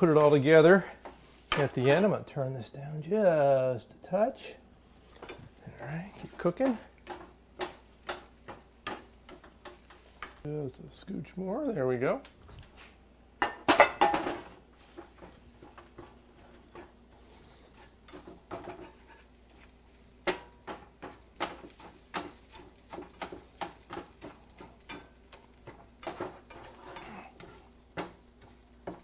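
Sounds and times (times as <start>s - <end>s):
eggs sizzling in oil: 0.0s - 10.6s, 12.8s - 29.0s
spatula scraping metal pan: 14.8s - 19.6s, 20.2s - 27.7s.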